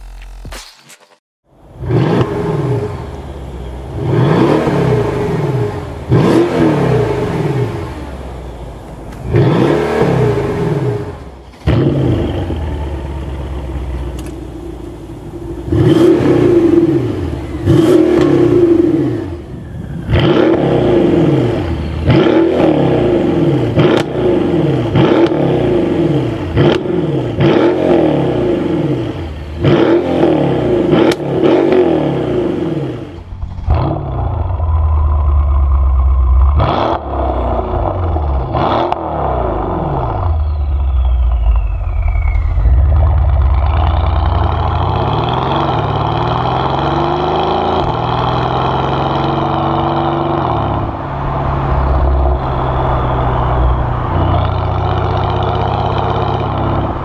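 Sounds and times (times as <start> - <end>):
car engine revving in blips: 1.7 - 57.0
exhaust cracks: 8.8 - 25.7, 29.5 - 57.0.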